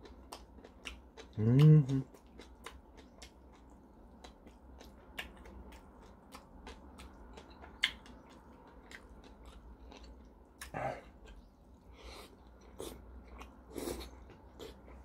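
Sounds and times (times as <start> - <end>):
person chewing wet mouth clicks: 0.0 - 11.5.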